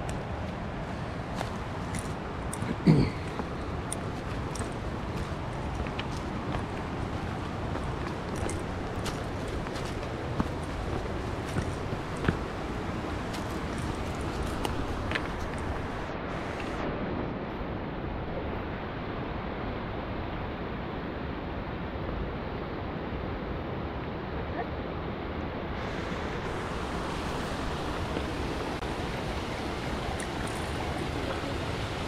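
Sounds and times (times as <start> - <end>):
mountain river rushing: 0.0 - 32.0.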